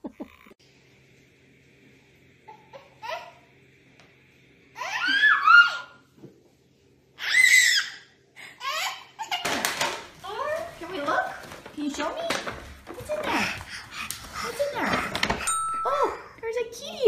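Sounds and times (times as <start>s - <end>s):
baby laughing and squealing: 4.8s - 6.0s.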